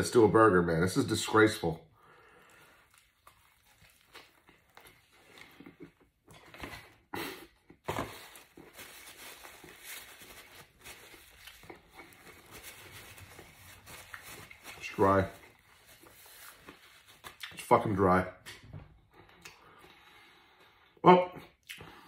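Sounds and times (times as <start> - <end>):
faint chewing: 2.2 - 6.6, 11.1 - 14.8
paper wrapping rustling: 7.8 - 17.4.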